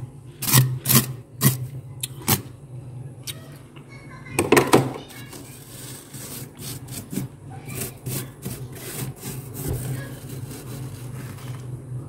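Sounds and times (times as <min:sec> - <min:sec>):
steady low hum: 0:00.0 - 0:12.0
fingers scraping freezer frost: 0:00.4 - 0:02.5, 0:05.2 - 0:11.7.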